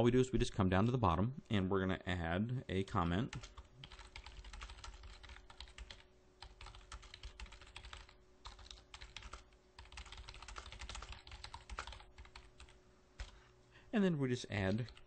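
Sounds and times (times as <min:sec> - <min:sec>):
typing on computer keyboard: 0:03.3 - 0:13.4.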